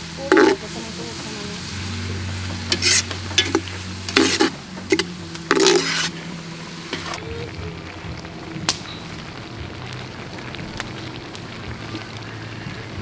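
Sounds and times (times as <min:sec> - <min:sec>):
faint sizzle: 0:00.0 - 0:13.0
utensil stirring and scraping stew: 0:00.2 - 0:00.7, 0:02.0 - 0:07.2.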